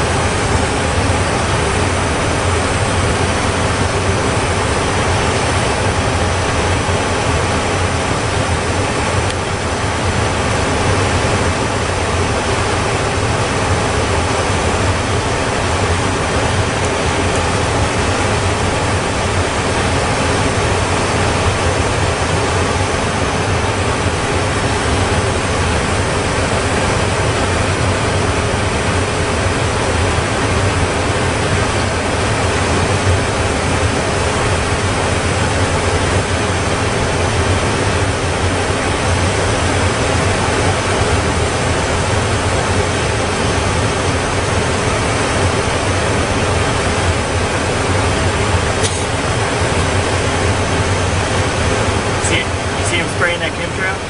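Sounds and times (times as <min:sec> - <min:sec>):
jet airliner engines rushing: 0:00.0 - 0:54.0.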